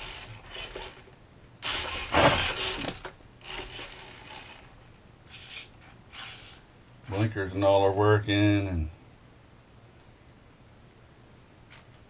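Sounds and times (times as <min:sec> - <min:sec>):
electric motor and gears whirring: 0:00.0 - 0:07.3.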